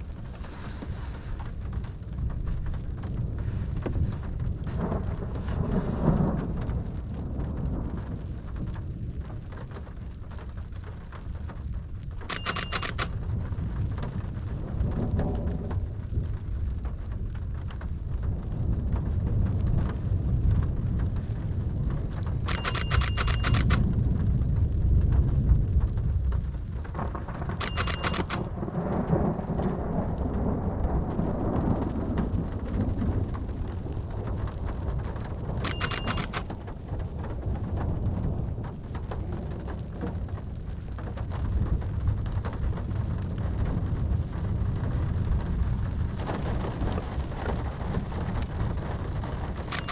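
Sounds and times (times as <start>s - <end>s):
falling rain: 0.0s - 49.9s
thunder rumbling: 0.0s - 49.9s.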